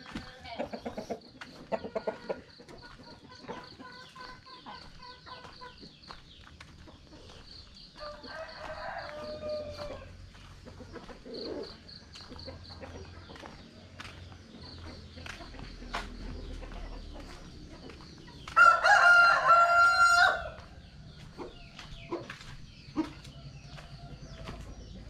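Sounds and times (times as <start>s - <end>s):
chickens clucking: 0.0s - 25.0s
rooster crowing: 8.0s - 10.2s, 18.5s - 20.8s.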